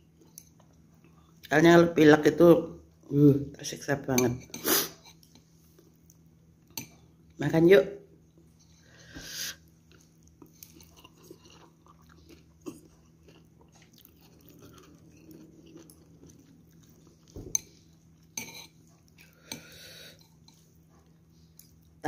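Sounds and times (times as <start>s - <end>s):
quiet chewing: 5.0s - 7.0s, 9.6s - 22.0s.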